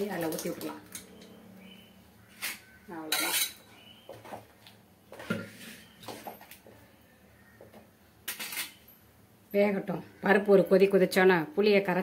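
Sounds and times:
spoon scraping metal vessel: 0:02.4 - 0:03.6.

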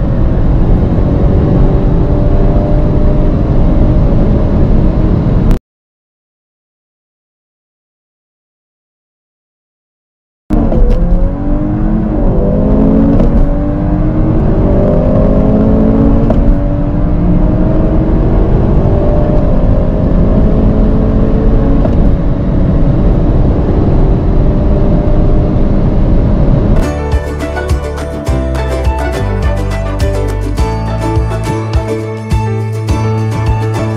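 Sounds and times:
car engine accelerating at full throttle: 0:00.0 - 0:05.6, 0:10.5 - 0:27.2.

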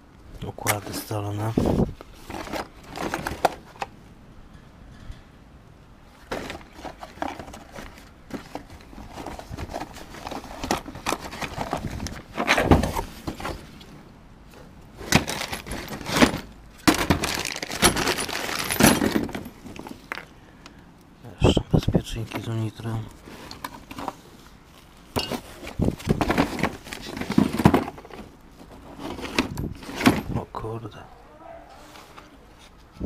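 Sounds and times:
electronic parts clinking and rattling: 0:15.0 - 0:20.3.

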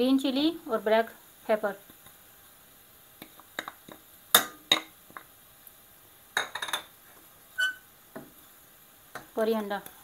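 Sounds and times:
bowls and spoon knocking on pot: 0:06.4 - 0:06.9.

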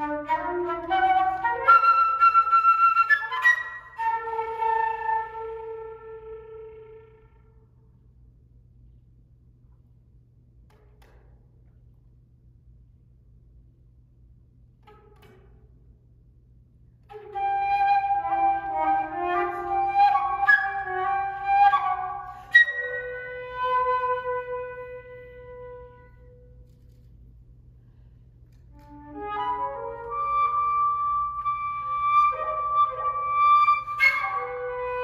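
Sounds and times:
solo flute playing: 0:00.0 - 0:07.7, 0:17.1 - 0:26.8, 0:28.7 - 0:35.0.

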